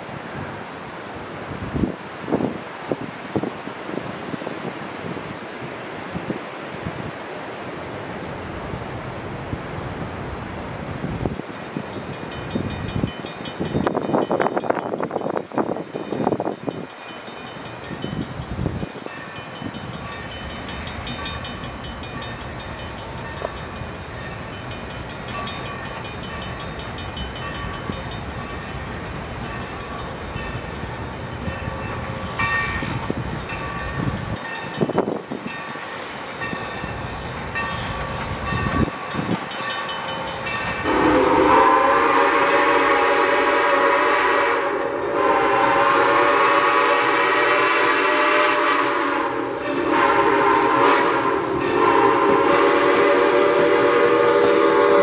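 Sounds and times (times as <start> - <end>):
faint approaching locomotive: 0.0 - 55.0
steam locomotive whistle: 40.8 - 55.0.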